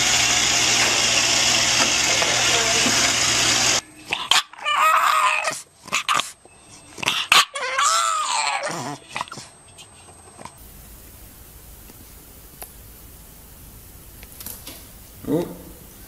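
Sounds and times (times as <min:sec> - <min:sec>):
puppy wavering calls: 0:04.0 - 0:10.0.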